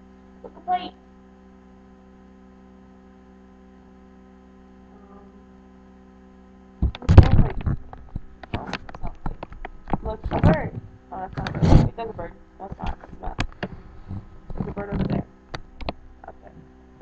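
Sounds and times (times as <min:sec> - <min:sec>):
faint electrical hum: 0:00.0 - 0:17.0
rustling and knocks on webcam: 0:06.8 - 0:12.0, 0:12.8 - 0:16.0.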